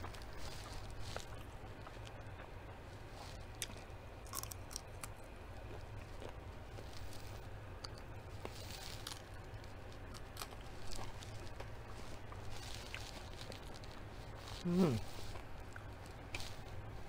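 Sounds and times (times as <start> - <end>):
chewing fries: 0.0 - 17.0
low steady hum: 0.0 - 17.0
wet mouth noises: 14.5 - 16.5.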